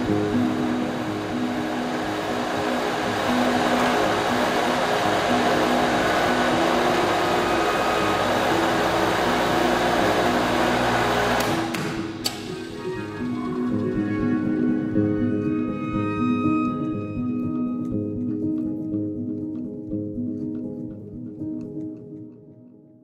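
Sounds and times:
water pump whooshing: 0:00.0 - 0:12.8
soft music: 0:00.0 - 0:23.0
sharp click: 0:11.4 - 0:12.5.

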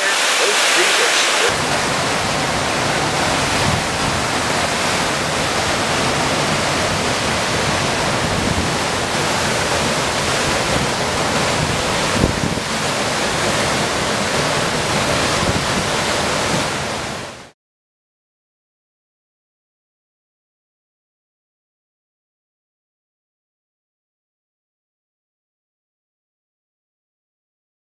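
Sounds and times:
strong wind rushing: 0:00.0 - 0:17.2
floodwater churning: 0:00.0 - 0:17.4
wind buffeting microphone: 0:01.4 - 0:12.8.

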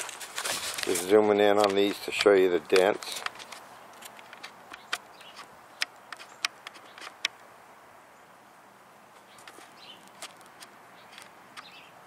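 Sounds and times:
faint outdoor hiss: 0:00.0 - 0:12.0
sharp clicks and ticks: 0:01.6 - 0:07.4.

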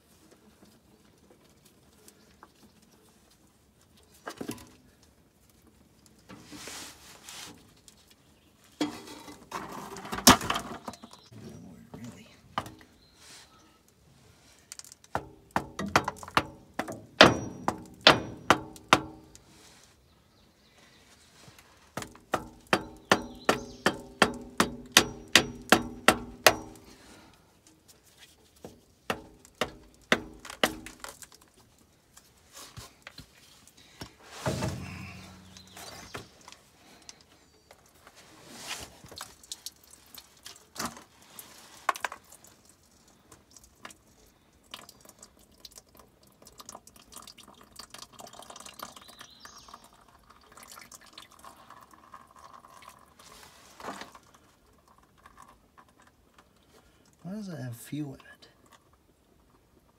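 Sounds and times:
oil dripping: 0:13.8 - 0:20.8, 0:21.4 - 0:38.1, 0:38.8 - 0:57.4, 0:58.5 - 0:59.9.

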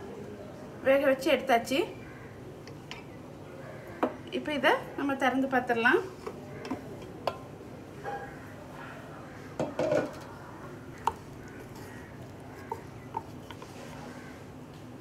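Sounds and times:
pot lid clattering: 0:09.6 - 0:10.2
spatula stirring meat in pot: 0:10.9 - 0:14.3
spatula tapping pot: 0:11.0 - 0:13.7.

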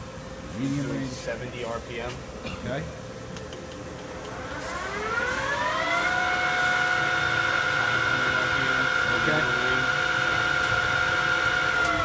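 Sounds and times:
lathe spindle whine: 0:04.2 - 0:12.0.

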